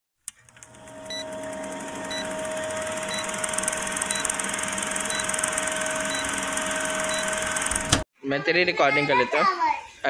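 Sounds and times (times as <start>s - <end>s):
film projector clatter: 0.3s - 8.0s
steady hum: 0.5s - 8.0s.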